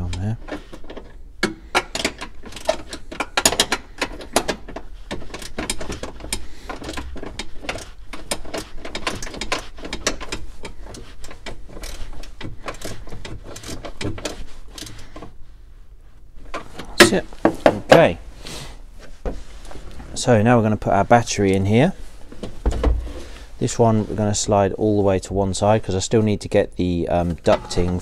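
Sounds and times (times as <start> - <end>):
metallic clicks of nut tightening: 0.0 - 15.3.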